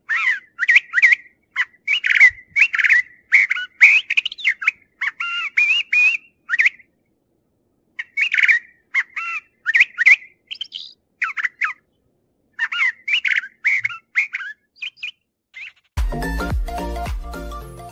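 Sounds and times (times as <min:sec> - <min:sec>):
bird singing whistled phrases: 0:00.1 - 0:06.9, 0:08.0 - 0:11.8, 0:12.6 - 0:15.9
music: 0:16.0 - 0:17.9.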